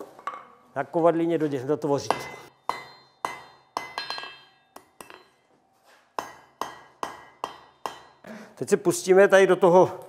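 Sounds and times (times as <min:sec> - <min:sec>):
hammer striking iron on anvil: 0:02.0 - 0:05.4, 0:06.2 - 0:08.2.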